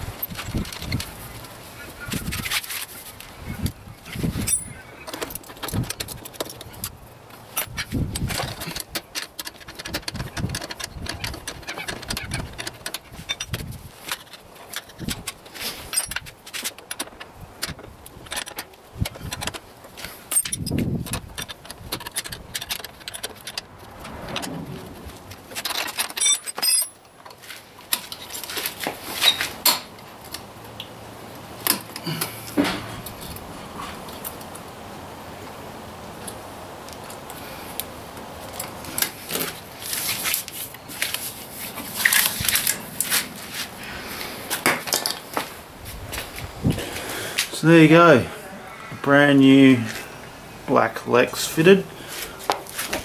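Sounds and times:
metallic clicks and clinks: 0:20.3 - 0:24.5, 0:25.5 - 0:28.5
hex keys jangling: 0:25.6 - 0:27.0.

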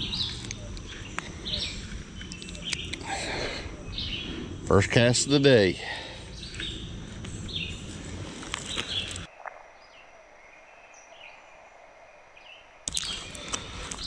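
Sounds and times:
handling clicks and rustles: 0:00.0 - 0:03.1, 0:06.4 - 0:09.3
birds chirping: 0:00.0 - 0:14.0
steady outdoor noise: 0:00.0 - 0:14.0.

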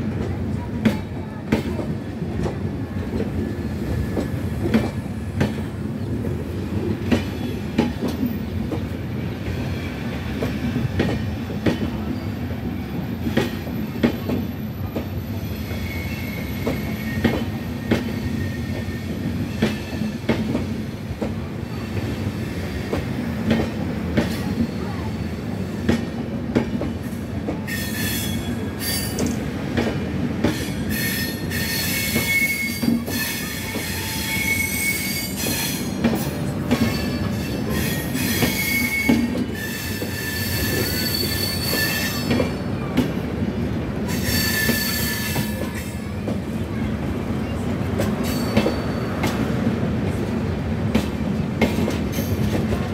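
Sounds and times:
train coaches rolling past: 0:00.0 - 0:52.9
metallic wheel squeals: 0:36.9 - 0:42.3, 0:44.1 - 0:45.6.

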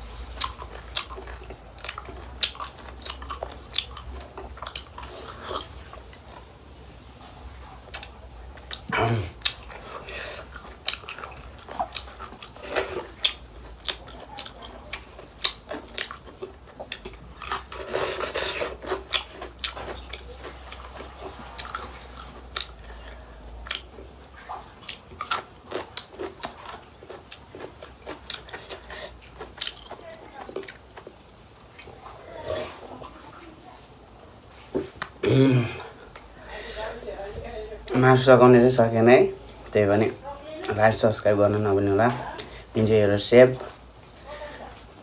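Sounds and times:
person chewing food: 0:00.0 - 0:33.3, 0:34.1 - 0:37.0.

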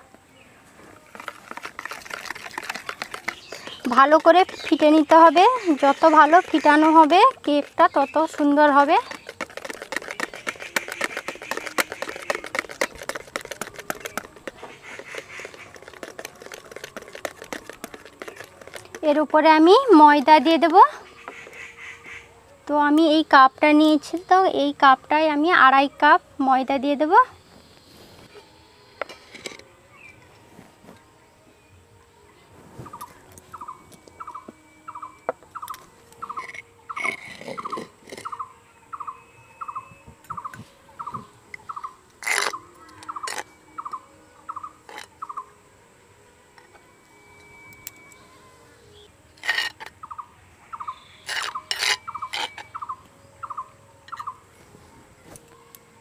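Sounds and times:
whisk clicking against plastic bowl: 0:01.3 - 0:04.9, 0:06.1 - 0:19.3.

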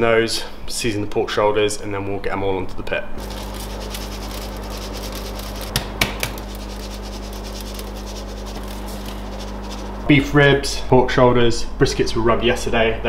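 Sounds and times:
steady low hum: 0:03.0 - 0:13.0
gloved hands rubbing meat: 0:03.2 - 0:10.2.

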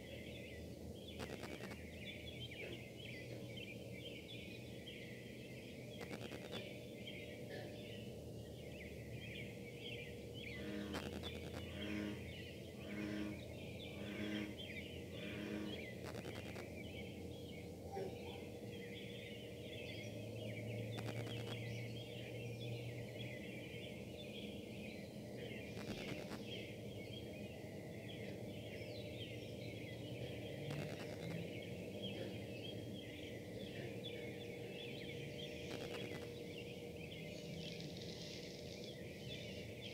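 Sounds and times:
industrial buzzing hum: 0:00.0 - 0:39.9
electronic interference crackles: 0:01.2 - 0:01.8, 0:06.0 - 0:06.6, 0:10.9 - 0:11.8, 0:16.0 - 0:16.7, 0:20.9 - 0:21.6, 0:25.8 - 0:26.4, 0:30.7 - 0:31.4, 0:35.7 - 0:36.3.

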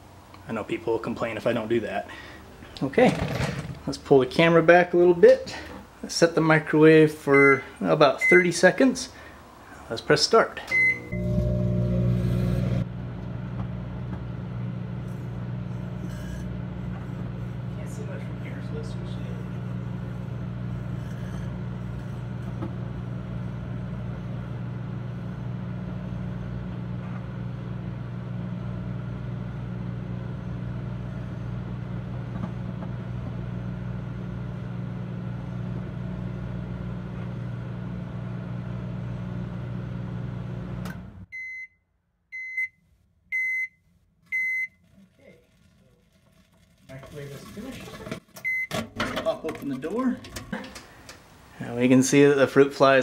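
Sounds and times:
microwave oven humming: 0:10.6 - 0:41.3.

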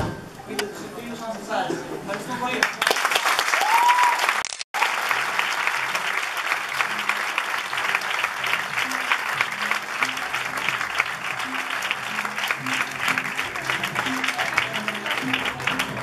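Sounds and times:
audience clapping: 0:02.2 - 0:16.0
soft music with low notes: 0:05.6 - 0:16.0.

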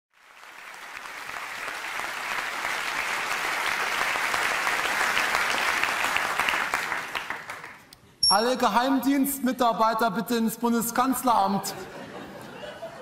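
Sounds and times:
audience applauding: 0:00.1 - 0:07.9.

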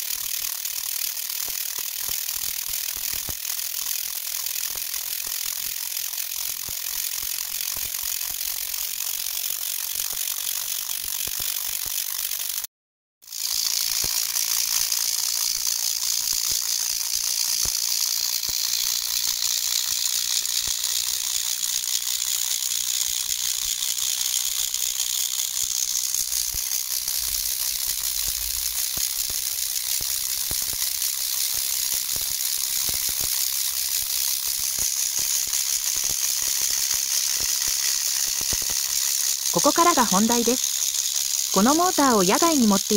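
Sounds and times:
electrostatic motor crackling hiss: 0:35.9 - 0:42.9.

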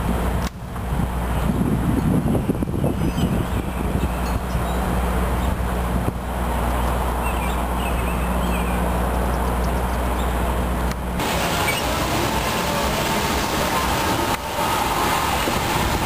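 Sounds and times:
engine humming: 0:00.0 - 0:16.0
bird chirps: 0:06.7 - 0:10.4.

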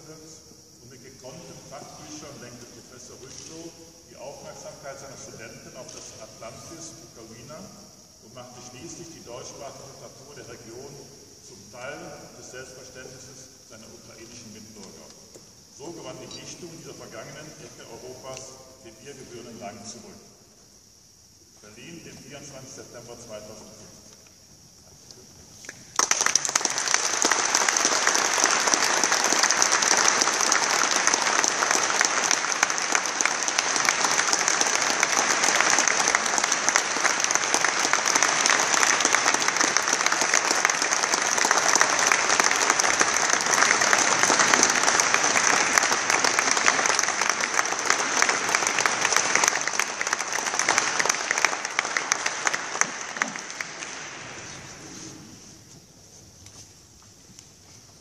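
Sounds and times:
audience applauding: 0:25.7 - 0:54.6.

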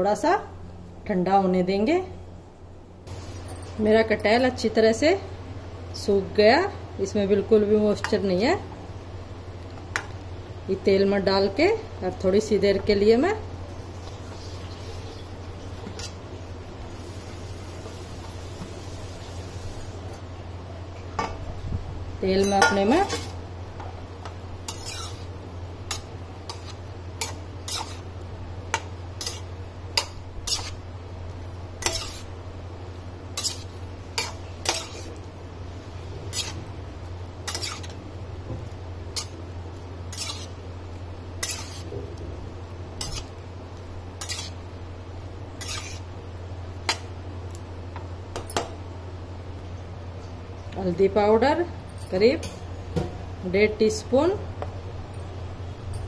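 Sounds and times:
spatula scraping metal pan: 0:24.7 - 0:25.3, 0:25.9 - 0:28.1, 0:29.2 - 0:30.8, 0:31.8 - 0:32.3, 0:33.4 - 0:35.2, 0:36.3 - 0:36.6, 0:37.4 - 0:38.0, 0:40.1 - 0:40.6, 0:41.4 - 0:41.9, 0:44.2 - 0:44.6, 0:45.6 - 0:46.1.

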